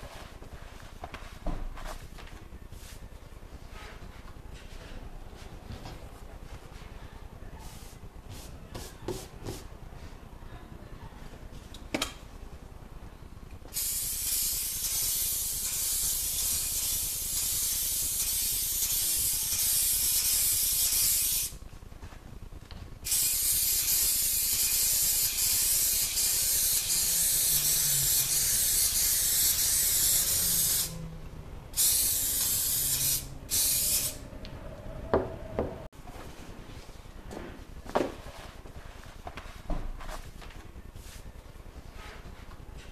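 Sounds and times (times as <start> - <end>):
aerosol can hissing: 23.1 - 31.0, 31.8 - 34.2.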